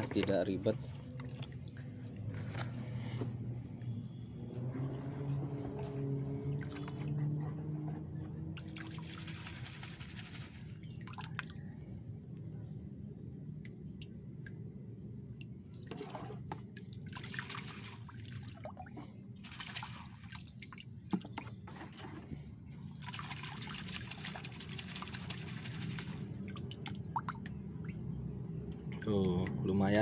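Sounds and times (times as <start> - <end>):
water sloshing and splashing: 0.0 - 3.4, 5.5 - 12.4, 15.3 - 29.6
steady low hum: 6.3 - 21.2.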